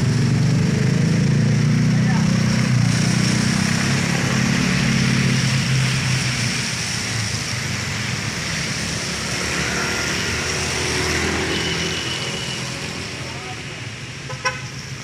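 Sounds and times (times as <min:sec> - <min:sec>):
car engine passing: 0:00.0 - 0:13.7
small motorcycles passing: 0:00.0 - 0:13.7
tyres hissing on wet road: 0:00.0 - 0:15.0.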